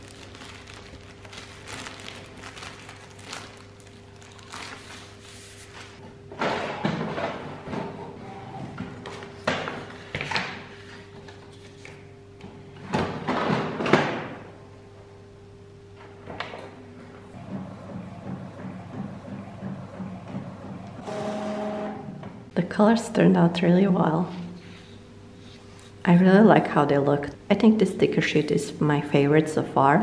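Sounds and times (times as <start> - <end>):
plastic wrap crinkling: 0.0 - 6.0.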